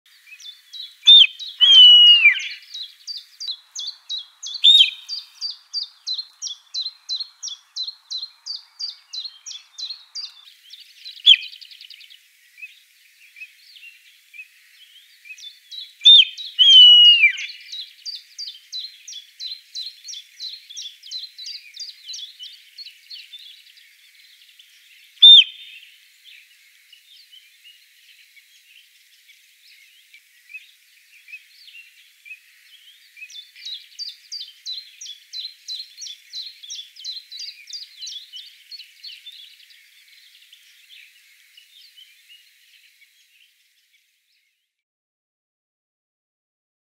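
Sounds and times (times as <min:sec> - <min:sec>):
bird chirping: 0:00.1 - 0:44.7
deer stag whistling: 0:01.1 - 0:02.6, 0:04.6 - 0:05.0, 0:16.1 - 0:17.5, 0:25.2 - 0:25.6.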